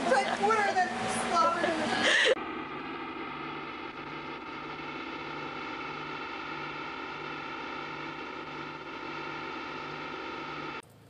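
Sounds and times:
camcorder hum and hiss: 0:02.4 - 0:11.0.

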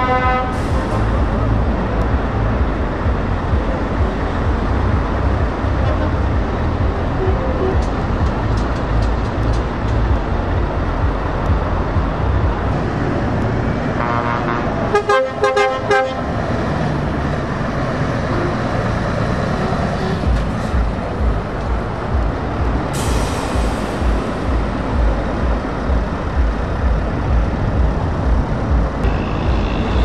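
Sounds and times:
air horn short toots: 0:00.0 - 0:01.1, 0:14.0 - 0:16.2
truck diesel engine running: 0:00.1 - 0:30.0
air hiss: 0:22.9 - 0:25.0.

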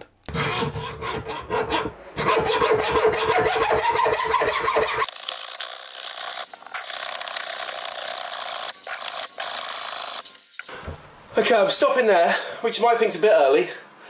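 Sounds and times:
hacksaw cutting steel chain: 0:04.9 - 0:10.4.

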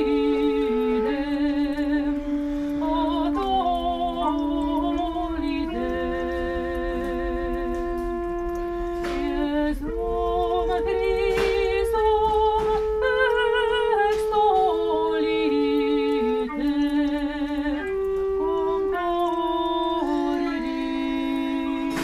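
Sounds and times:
voices singing with vibrato: 0:00.0 - 0:08.0, 0:09.0 - 0:22.0
pipe organ chords: 0:07.7 - 0:09.2.

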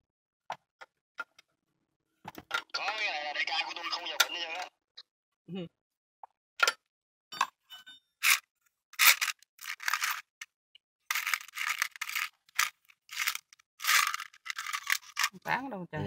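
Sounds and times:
metal parts scraping and clicking: 0:08.2 - 0:10.5, 0:11.1 - 0:15.4.

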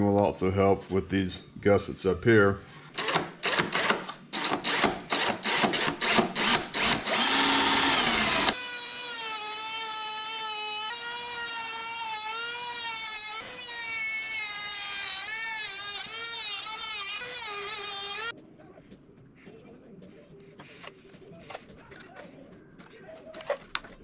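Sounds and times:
power drill boring in pulses: 0:03.0 - 0:18.3
rotary tool high whine: 0:03.0 - 0:18.3.

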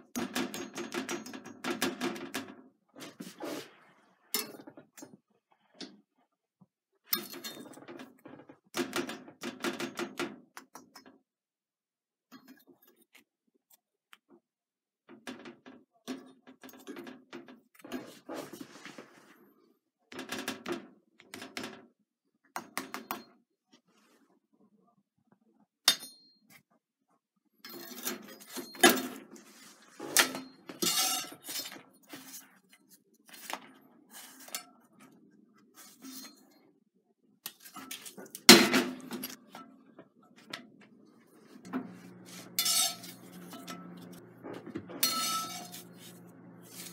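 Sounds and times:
metal tongs clinking and scraping: 0:30.1 - 0:32.4, 0:42.3 - 0:44.2, 0:44.9 - 0:46.9.

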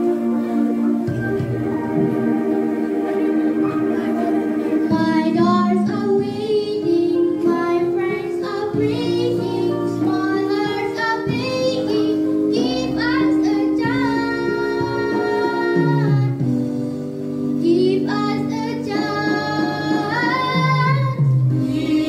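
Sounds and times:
backing music with held chords: 0:00.0 - 0:22.0
girl singing into a microphone: 0:04.9 - 0:16.4, 0:17.6 - 0:21.3.

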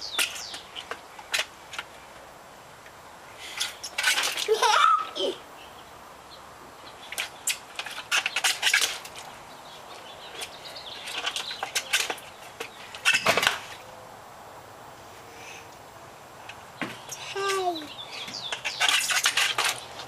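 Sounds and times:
plastic pots rustling: 0:16.8 - 0:20.0.

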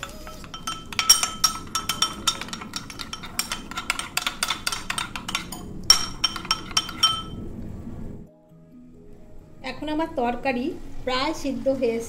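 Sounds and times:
spoon clinking against glass bowl: 0:00.0 - 0:07.4.

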